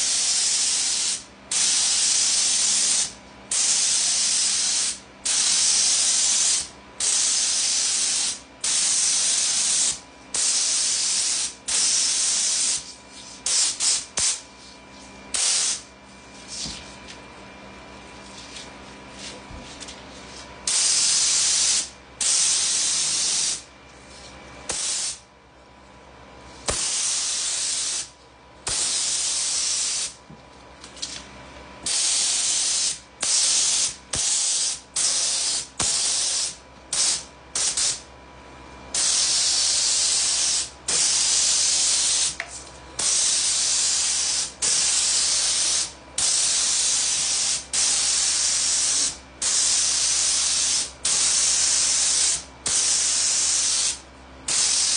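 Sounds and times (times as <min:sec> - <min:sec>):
spray gun hissing: 0:00.0 - 0:14.4, 0:15.3 - 0:15.9, 0:20.7 - 0:23.6, 0:24.7 - 0:25.2, 0:26.7 - 0:28.1, 0:28.7 - 0:30.2, 0:31.9 - 0:38.0, 0:39.0 - 0:42.4, 0:43.0 - 0:54.9.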